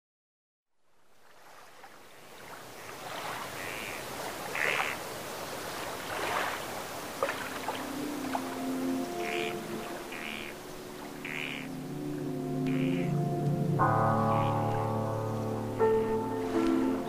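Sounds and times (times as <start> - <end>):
water washing on shore: 1.1 - 13.1, 15.6 - 17.0
sustained music notes: 7.4 - 17.0
short bird calls: 9.2 - 10.6, 11.2 - 11.7, 12.7 - 13.1.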